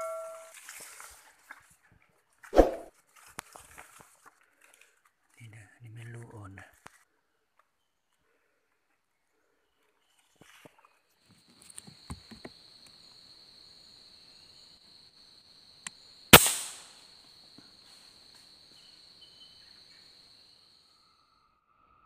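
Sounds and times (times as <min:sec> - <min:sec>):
air rifle shot: 0:16.4 - 0:17.0.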